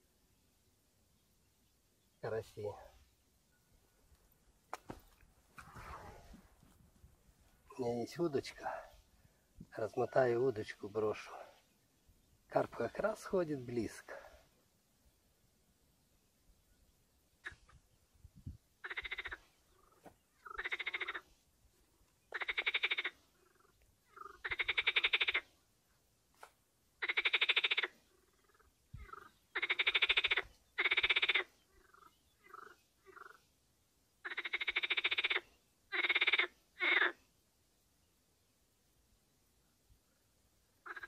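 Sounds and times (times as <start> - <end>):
frogs croaking: 17.4 - 17.8, 18.8 - 21.3, 22.3 - 25.6, 27.0 - 33.6, 34.2 - 37.2, 40.7 - 41.0.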